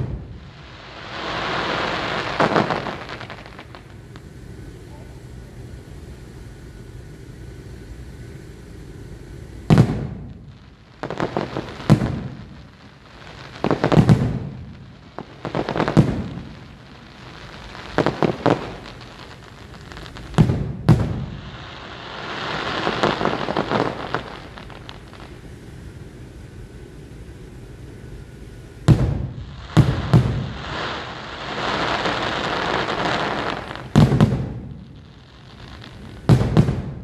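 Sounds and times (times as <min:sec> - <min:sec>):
fireworks pops: 0:01.2 - 0:05.2, 0:09.6 - 0:12.7, 0:13.4 - 0:25.4, 0:28.9 - 0:37.0.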